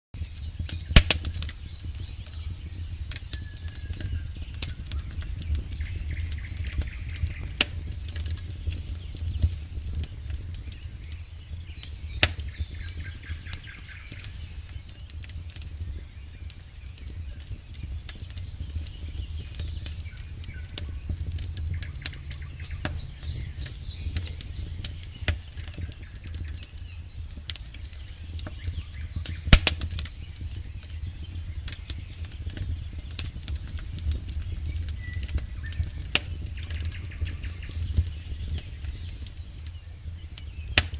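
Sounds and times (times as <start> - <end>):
campfire crackling and popping: 0.1 - 40.9.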